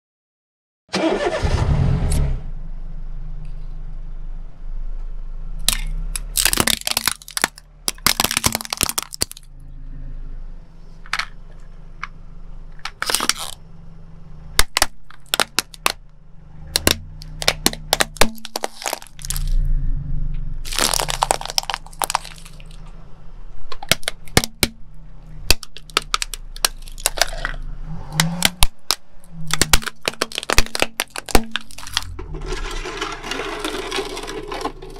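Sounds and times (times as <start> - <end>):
car engine humming: 1.0 - 34.9
plastic cracking under car tyre: 5.6 - 9.5, 12.8 - 13.6, 14.5 - 16.1, 16.7 - 19.6, 20.6 - 22.9, 23.7 - 24.8, 25.4 - 34.9.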